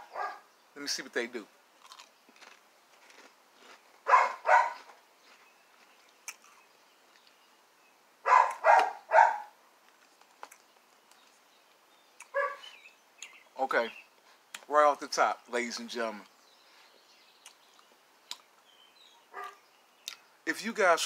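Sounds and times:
dog barking: 0.0s - 0.5s, 4.1s - 4.9s, 8.2s - 9.6s, 12.3s - 12.7s, 19.3s - 19.6s.

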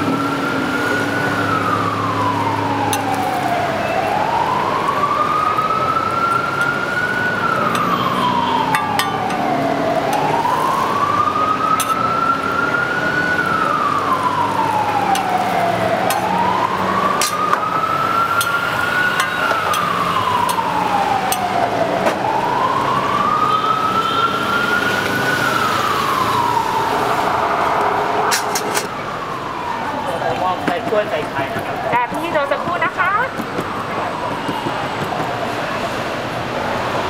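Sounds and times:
emergency siren wailing: 0.0s - 37.0s
low rumble: 26.7s - 29.4s.

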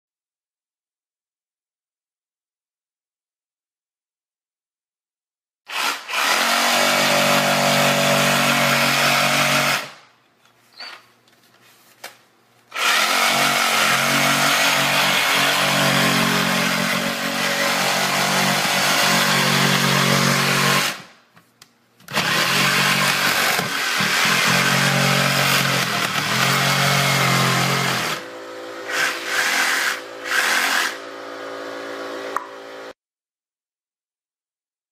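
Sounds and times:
reciprocating saw cutting drywall: 5.7s - 10.1s, 12.7s - 21.2s, 22.1s - 33.0s.

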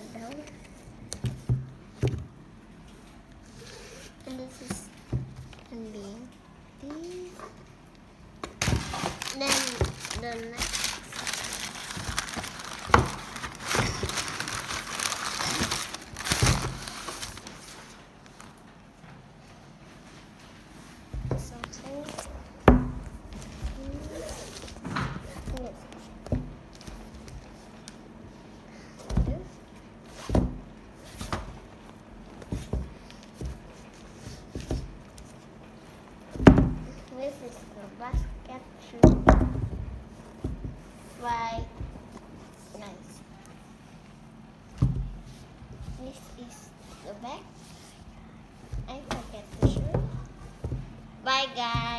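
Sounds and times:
tissue paper crinkling and rustling: 8.7s - 18.6s.

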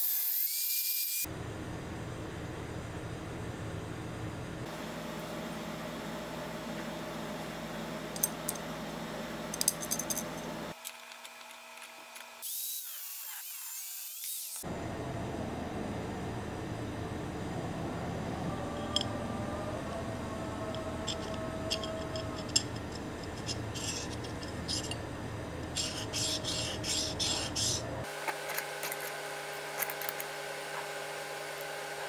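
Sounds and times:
steady machine hum: 1.3s - 10.8s, 14.6s - 32.0s
metal rasping on metal: 21.0s - 25.0s, 25.8s - 27.8s.

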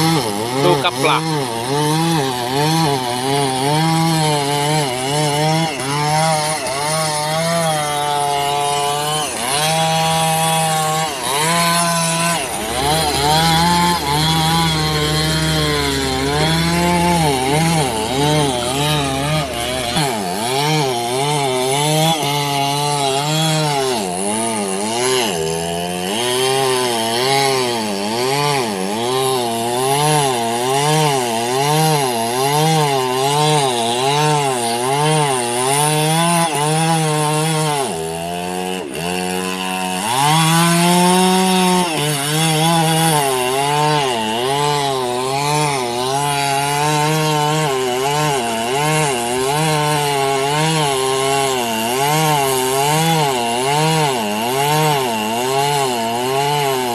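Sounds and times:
chainsaw cutting log: 0.0s - 56.9s
deep engine hum: 11.4s - 21.8s.

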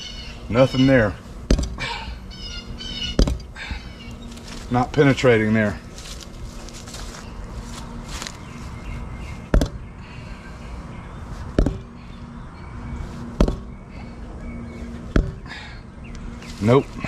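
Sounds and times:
knife point knocking on tire: 1.5s - 1.8s, 3.2s - 3.4s, 9.5s - 9.8s, 11.6s - 11.9s, 13.4s - 13.7s, 15.2s - 15.4s.

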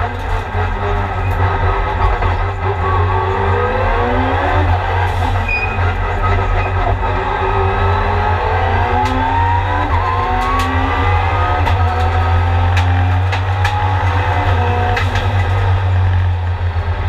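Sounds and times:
race car engine accelerating: 0.0s - 17.0s.

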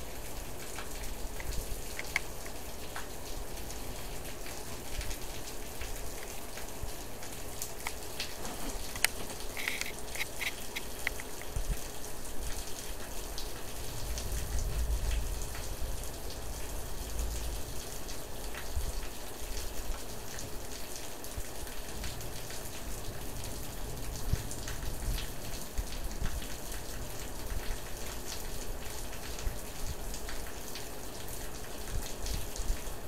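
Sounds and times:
rain falling: 0.0s - 33.0s
low rumble: 13.8s - 17.7s.

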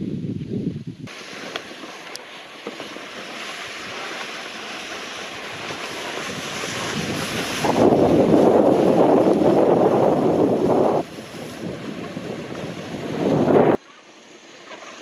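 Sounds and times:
wind rushing over microphone: 0.0s - 1.7s, 4.8s - 13.8s
skis hissing on snow: 1.1s - 15.0s.

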